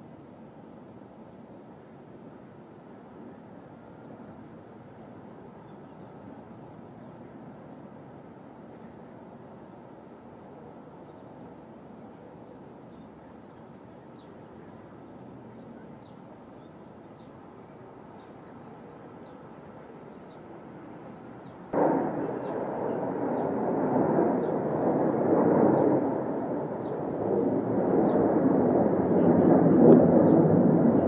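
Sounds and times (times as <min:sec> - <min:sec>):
jet aircraft roar: 0:21.8 - 0:31.0.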